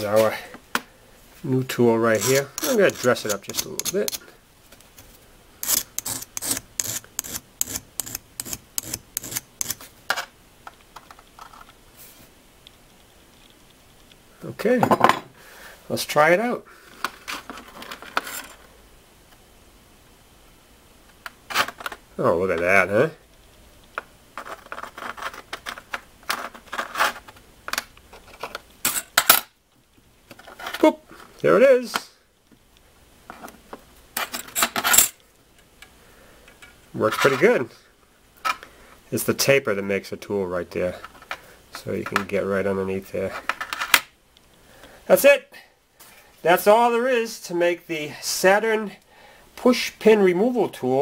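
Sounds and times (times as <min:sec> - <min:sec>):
hand file rasping on steel: 0:02.2 - 0:04.2, 0:05.6 - 0:09.8.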